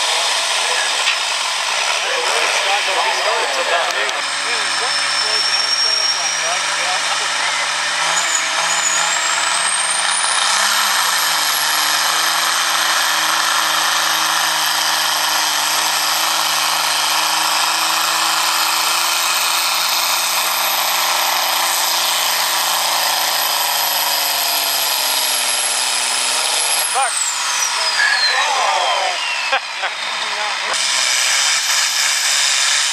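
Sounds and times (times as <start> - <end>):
tractor diesel engine at full load: 0.0 - 32.9
turbo whistle: 4.9 - 6.5, 27.0 - 29.8.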